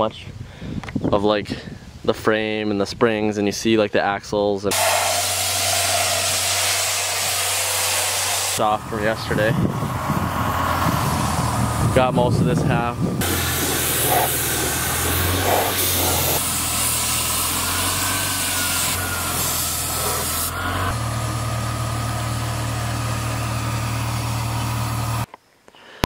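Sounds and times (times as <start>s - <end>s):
paint spray gun hissing: 4.7s - 8.6s, 13.2s - 25.3s
steady motor hum: 4.7s - 25.3s.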